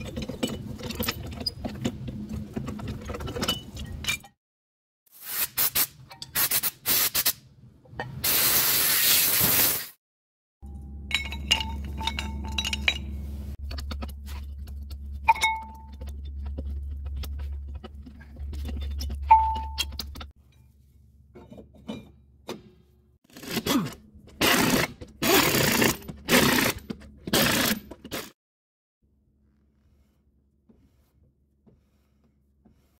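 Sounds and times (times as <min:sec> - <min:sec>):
pneumatic impact wrench bursts: 0:05.1 - 0:07.4, 0:08.2 - 0:10.0, 0:24.4 - 0:28.3
steady low hum: 0:10.6 - 0:21.3
metal brake parts clinking: 0:10.7 - 0:13.5.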